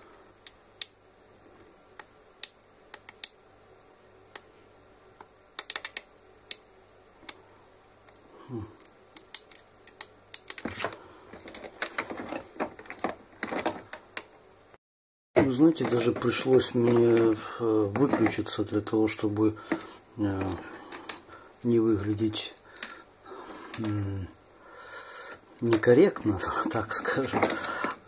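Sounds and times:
handling of circuit board: 0:09.5 - 0:14.0, 0:15.4 - 0:18.7, 0:25.6 - 0:28.0.

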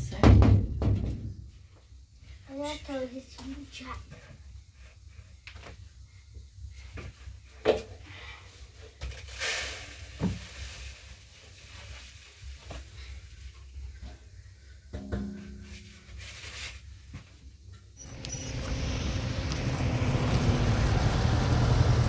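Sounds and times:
short hiss: 0:09.3 - 0:10.2.

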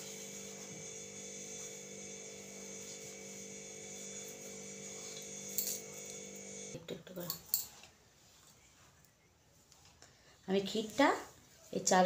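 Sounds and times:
buzzing electrical hum: 0:00.0 - 0:07.4.

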